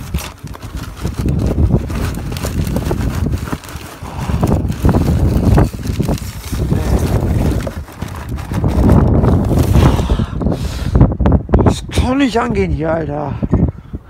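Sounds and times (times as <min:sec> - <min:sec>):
plastic bin liner crinkling: 0:00.0 - 0:09.8
wind noise on microphone: 0:00.0 - 0:14.0.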